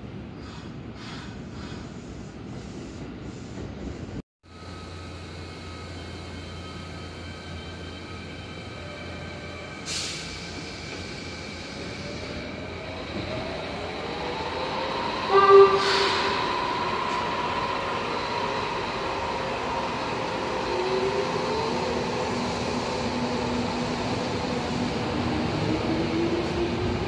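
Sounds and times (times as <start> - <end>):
train rolling past: 0.3 - 27.0
train horn blast: 15.3 - 16.3.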